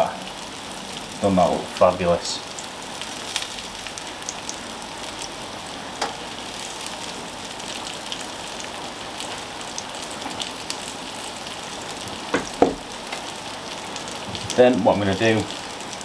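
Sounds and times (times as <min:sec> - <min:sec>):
food sizzling on grill: 0:00.0 - 0:16.0
knocks: 0:12.3 - 0:12.8.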